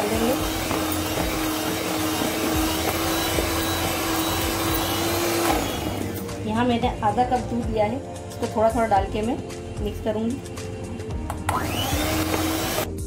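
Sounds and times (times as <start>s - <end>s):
electric hand mixer running: 0.0s - 6.4s, 11.3s - 13.0s.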